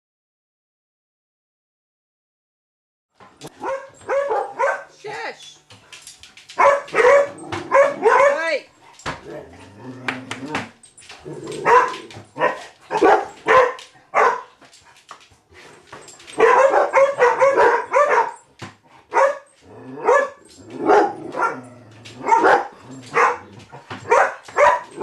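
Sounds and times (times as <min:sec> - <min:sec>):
puppy barking: 0:03.5 - 0:05.0, 0:06.6 - 0:08.6, 0:11.6 - 0:14.6, 0:16.3 - 0:18.5, 0:19.1 - 0:25.0.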